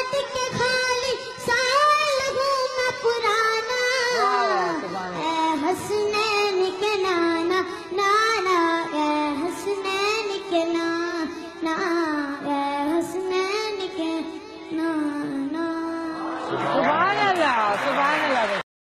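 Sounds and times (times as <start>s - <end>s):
boy singing into a microphone: 0.0s - 16.4s.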